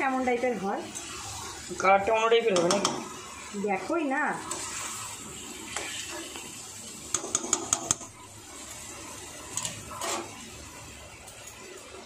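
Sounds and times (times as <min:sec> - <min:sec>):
spatula scrape: 0:04.5 - 0:06.4, 0:09.5 - 0:10.5.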